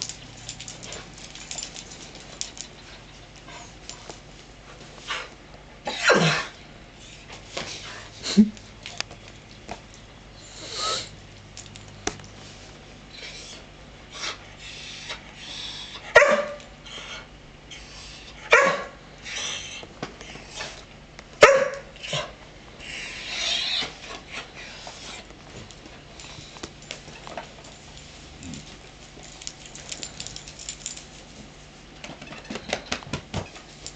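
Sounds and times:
dog barking: 16.1 - 16.7, 18.4 - 19.0, 21.4 - 22.3
quiet dog noises: 26.2 - 31.7.

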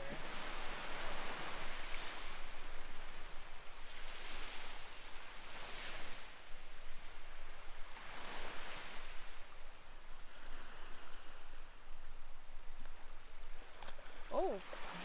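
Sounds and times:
surf washing onto pebbles: 0.0 - 9.5, 13.4 - 15.0.

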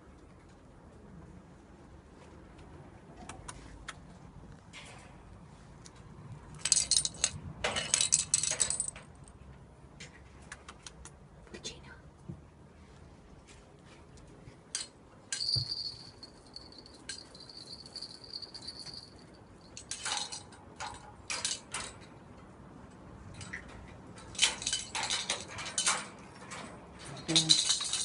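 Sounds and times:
cat toys clinking on tiles: 6.5 - 9.3, 14.7 - 22.4, 23.2 - 28.0.

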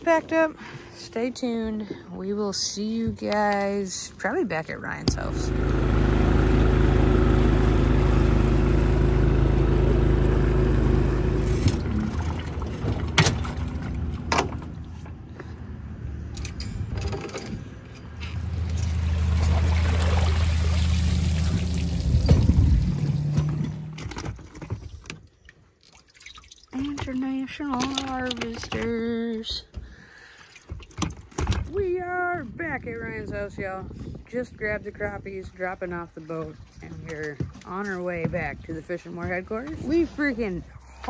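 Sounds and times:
low motor hum: 0.0 - 25.2
outboard motor running: 4.2 - 15.5, 18.2 - 25.4
water rushing past hull: 5.4 - 15.0, 18.6 - 24.2.

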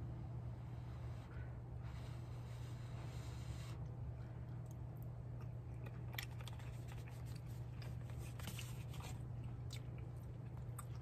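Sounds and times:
steady low hum: 0.0 - 11.0
person chewing: 3.8 - 11.0.

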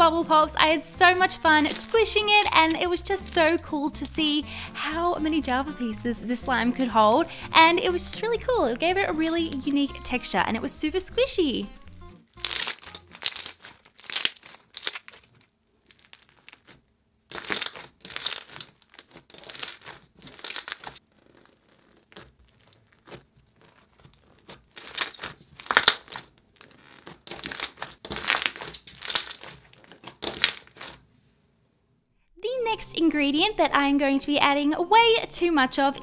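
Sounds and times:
slime squeezed by hand crackling: 0.7 - 3.6, 12.3 - 31.1.

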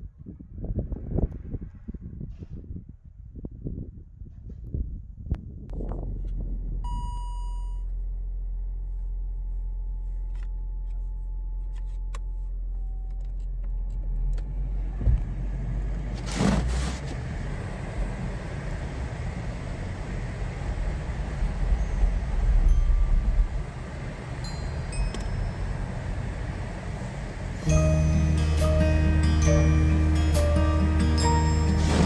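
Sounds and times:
car engine idling: 7.8 - 32.0
car driving through deep snow: 14.6 - 32.0
dashboard chime: 22.5 - 23.7, 24.4 - 26.0, 27.6 - 31.8.

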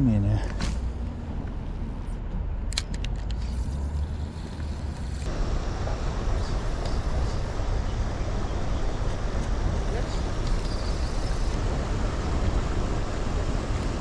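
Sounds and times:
low rumble of city traffic: 0.0 - 14.0.

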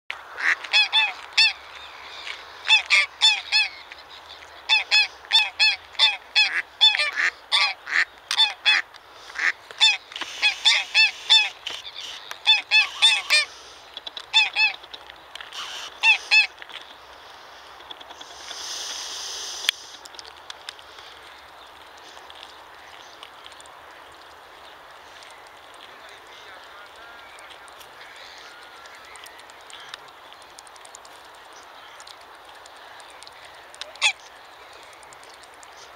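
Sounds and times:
geese honking: 0.4 - 14.8, 15.5 - 16.6, 22.0 - 30.3, 32.8 - 35.0
goose hissing: 9.2 - 13.9, 15.5 - 16.5, 17.3 - 20.1.

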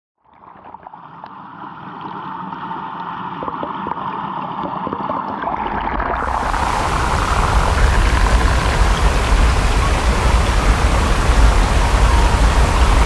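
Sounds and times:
waterfall rushing and splashing: 6.2 - 13.0.

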